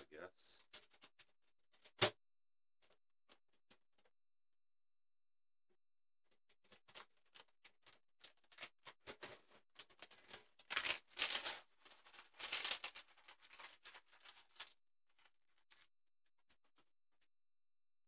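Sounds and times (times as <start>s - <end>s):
packaging rustling and crinkling: 6.6s - 15.9s.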